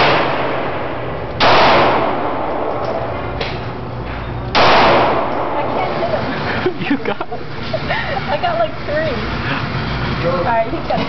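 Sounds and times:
pistol shots with echo: 0:00.0 - 0:03.6, 0:04.5 - 0:05.9.

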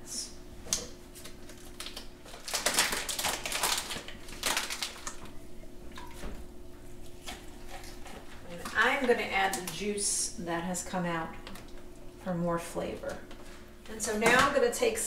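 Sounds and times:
faint steady hum: 0:00.0 - 0:15.0
plastic packaging crinkling: 0:01.1 - 0:05.4.

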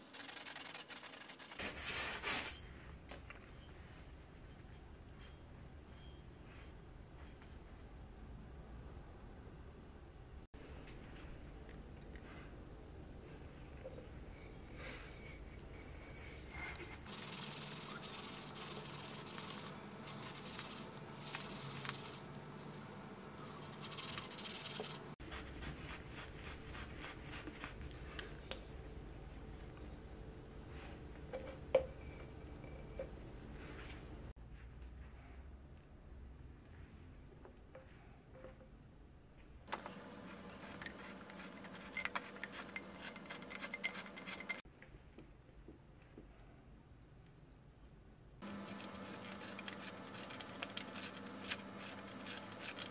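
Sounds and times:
steel wool scrubbing metal: 0:00.0 - 0:02.7, 0:03.5 - 0:07.9, 0:14.2 - 0:28.6, 0:39.7 - 0:44.6, 0:48.4 - 0:52.9
blade scraping metal bottle: 0:39.8 - 0:44.6.

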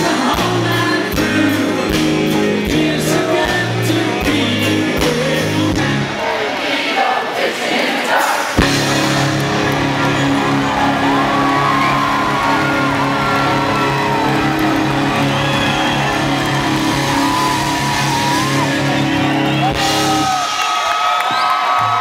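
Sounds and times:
country-rock band playing: 0:00.0 - 0:06.2, 0:08.4 - 0:20.9
audience whistles and whoops: 0:08.9 - 0:22.0.

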